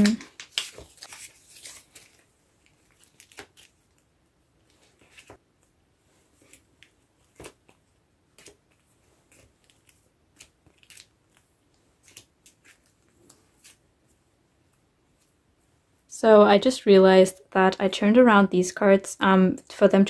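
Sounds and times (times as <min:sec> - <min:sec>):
plastic sleeves rustling: 0:00.0 - 0:15.7.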